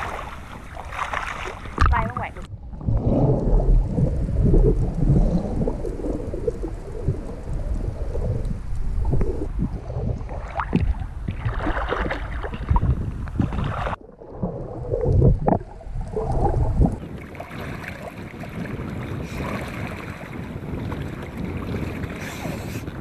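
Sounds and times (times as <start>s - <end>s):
water splashing from swimmers: 0.0s - 3.0s, 10.2s - 22.8s
wind and water noise: 0.0s - 23.0s.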